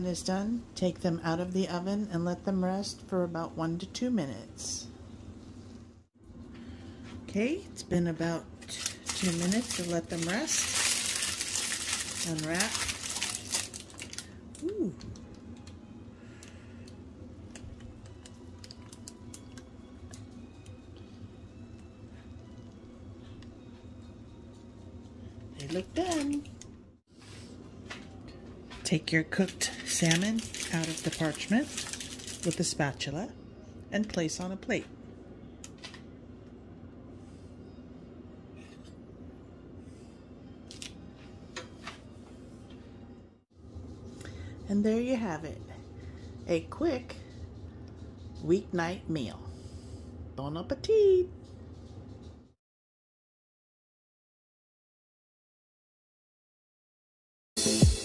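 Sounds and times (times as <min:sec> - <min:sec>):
steady low hum: 0:00.0 - 0:52.6
parchment paper crackling: 0:08.6 - 0:14.4, 0:29.4 - 0:32.7.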